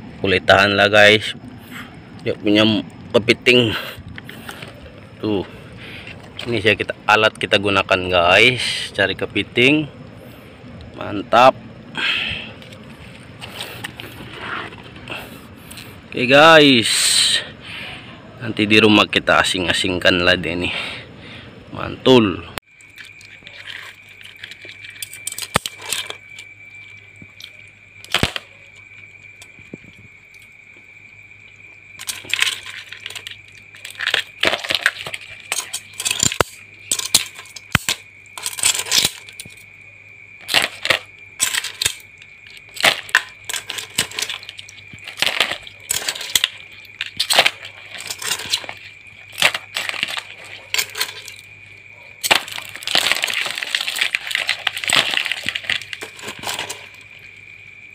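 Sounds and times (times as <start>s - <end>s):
crab shells clicking on plastic: 40.4s - 51.5s, 52.2s - 57.0s.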